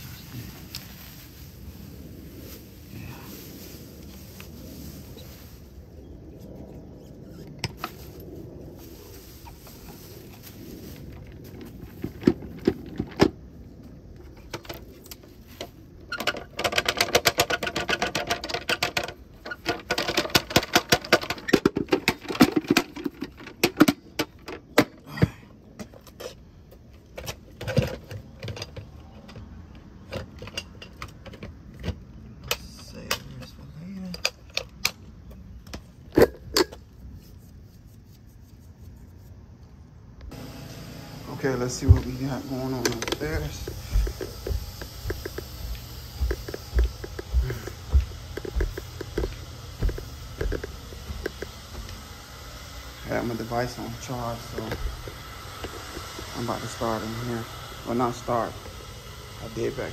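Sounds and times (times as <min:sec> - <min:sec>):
plastic bag rustling: 0:00.0 - 0:06.1, 0:07.8 - 0:12.9.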